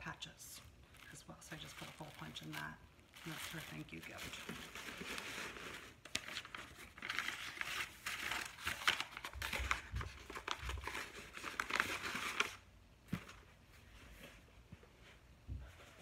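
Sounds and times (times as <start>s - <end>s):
tissue paper crinkling: 0.2s - 12.7s.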